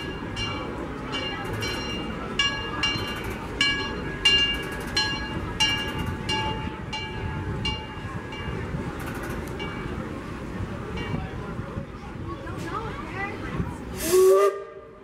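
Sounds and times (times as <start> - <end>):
locomotive bell ringing: 0.0 - 11.4
train rolling rumble: 0.0 - 15.0.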